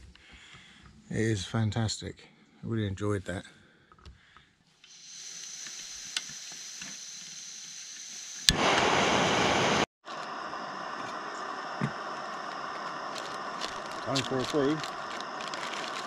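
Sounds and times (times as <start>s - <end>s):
gas stove hissing: 4.8s - 16.0s
loud rushing hiss: 4.9s - 16.0s.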